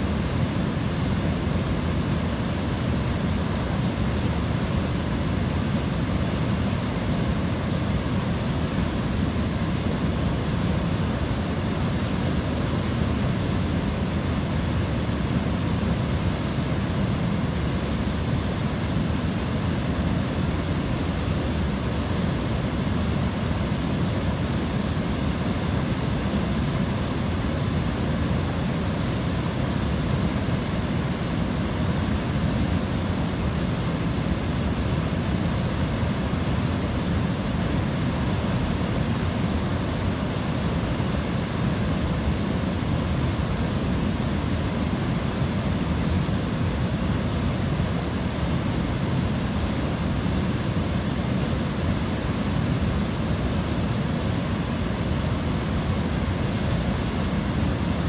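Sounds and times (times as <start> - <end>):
river rushing over weir: 0.0 - 58.0.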